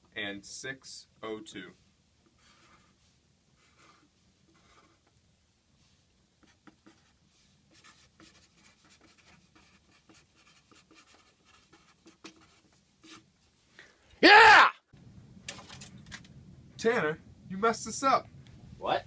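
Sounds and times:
marker scratching on whiteboard: 0:02.2 - 0:03.0, 0:03.6 - 0:05.2, 0:06.4 - 0:13.3.

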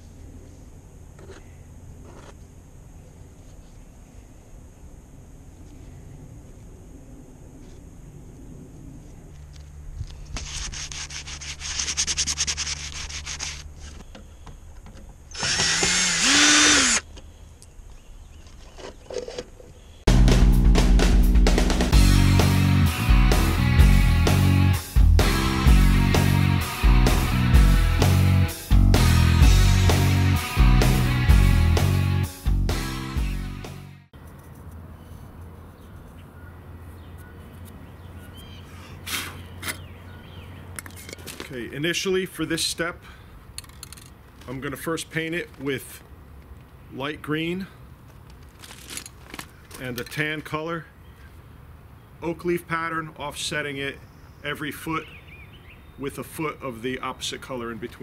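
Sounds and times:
scouring pad scrubbing metal deck: 0:10.4 - 0:13.8
cordless drill whine: 0:15.3 - 0:17.1
faint bird calls: 0:34.4 - 0:41.2.

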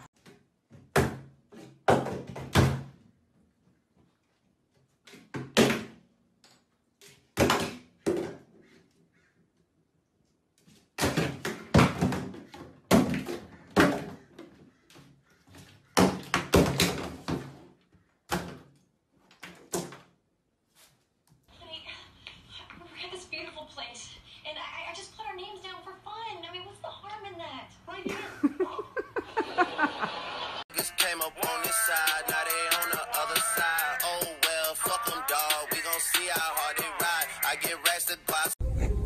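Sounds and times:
plastic bottles falling into tub: 0:00.6 - 0:03.0, 0:05.1 - 0:06.1, 0:07.0 - 0:08.6, 0:10.8 - 0:14.7, 0:15.6 - 0:20.2.

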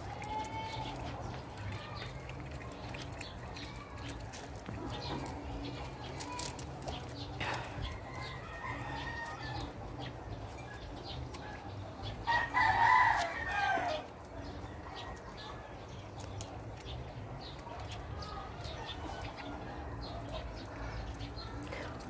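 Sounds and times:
rooster crowing: 0:12.3 - 0:14.0.

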